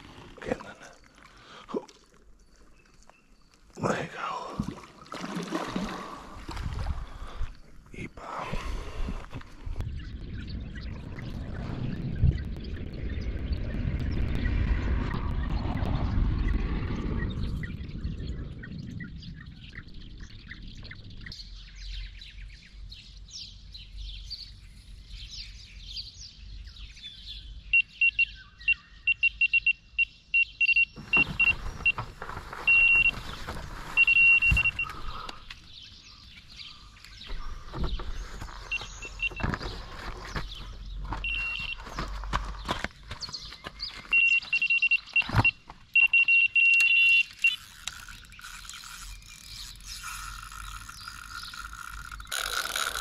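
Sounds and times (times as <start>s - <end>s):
bite alarm beeping: 27.8s - 32.1s, 32.7s - 33.2s, 34.0s - 35.3s, 38.7s - 39.5s, 41.2s - 41.8s, 44.1s - 50.9s.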